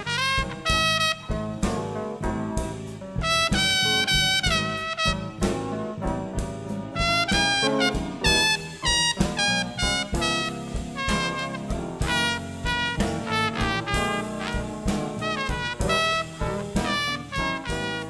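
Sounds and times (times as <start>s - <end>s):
swing jazz band playing: 0.0s - 18.0s
trombone and saxophone melody: 0.0s - 18.0s.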